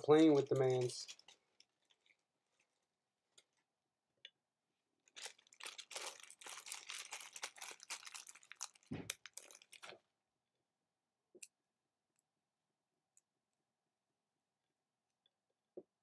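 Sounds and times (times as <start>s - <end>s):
crunching and crinkling by hands: 0.0s - 3.7s, 5.0s - 10.0s.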